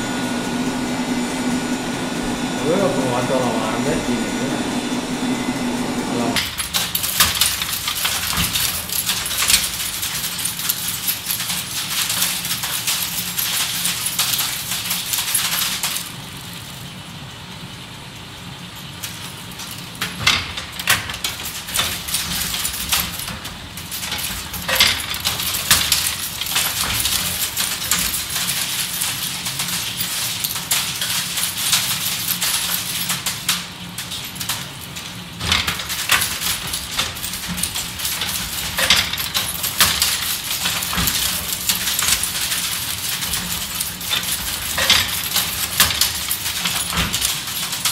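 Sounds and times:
steady motor hum: 0:00.0 - 0:15.1
metallic clicking and clattering machine: 0:06.4 - 0:16.8, 0:18.6 - 0:47.9.

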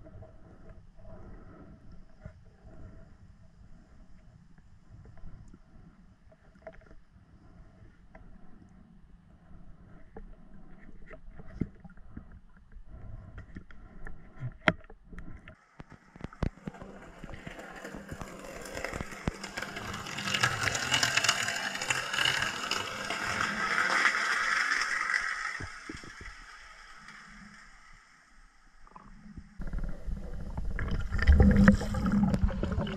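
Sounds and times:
underwater clicks and knocks: 0:13.4 - 0:17.4, 0:29.6 - 0:32.9.

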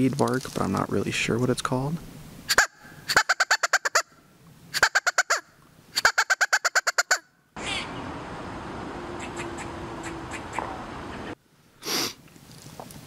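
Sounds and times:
outdoor background hiss: 0:00.0 - 0:13.0
squirrel call barks: 0:02.5 - 0:08.0, 0:09.1 - 0:11.4.

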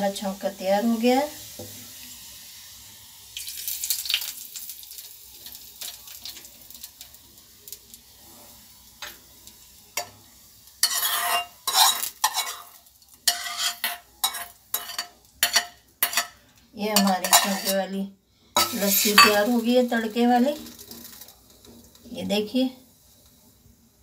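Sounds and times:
hot oil sizzling: 0:00.0 - 0:24.0
metal spoon scraping pan: 0:10.8 - 0:18.0, 0:18.6 - 0:19.7.

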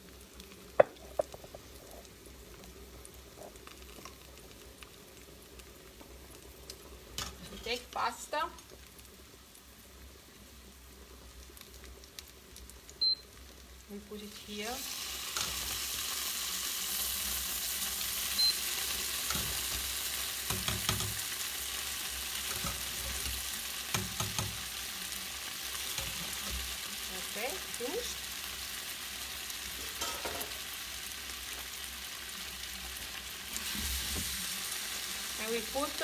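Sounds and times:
pasta sizzling in a frying pan: 0:00.0 - 0:36.0
utensil knocking against pan: 0:00.8 - 0:01.3.

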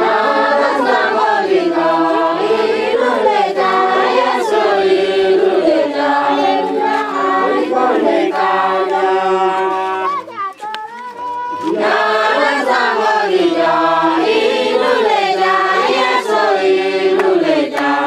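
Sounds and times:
women singing in chorus: 0:00.0 - 0:18.0.

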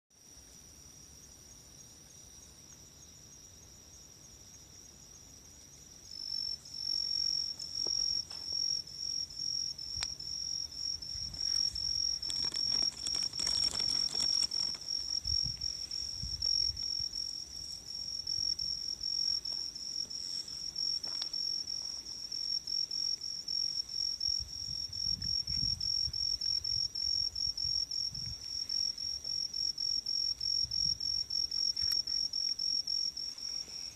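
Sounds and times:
night insects chirping: 0:00.2 - 0:33.9
brief rustle: 0:11.4 - 0:15.2.

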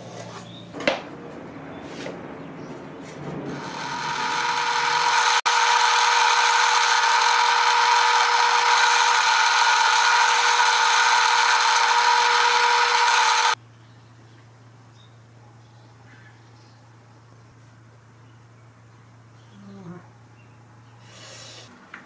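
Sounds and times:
electric drill whining: 0:03.5 - 0:13.6.

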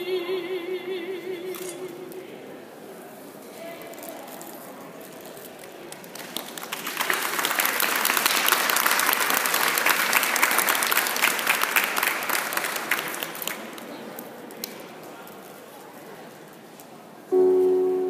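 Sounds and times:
audience applauding: 0:05.9 - 0:13.8.

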